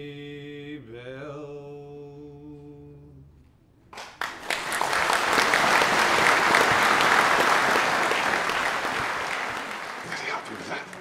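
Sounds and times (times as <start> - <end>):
audience applause: 4.0 - 11.0.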